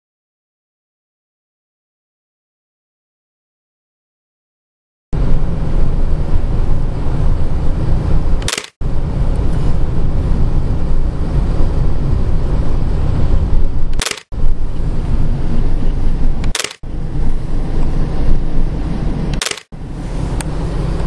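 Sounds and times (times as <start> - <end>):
car road and wind rumble: 5.2 - 21.0
short click: 8.4 - 8.8.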